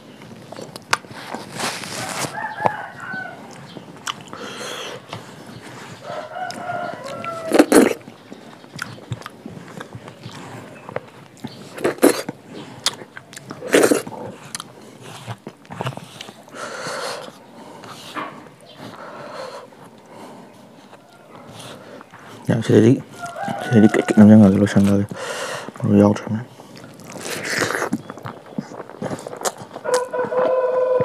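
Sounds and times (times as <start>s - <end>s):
crunching bites: 0.4s - 18.1s, 26.5s - 31.0s
rooster crowing: 2.0s - 3.8s, 6.0s - 8.0s, 23.1s - 24.8s, 29.8s - 31.0s.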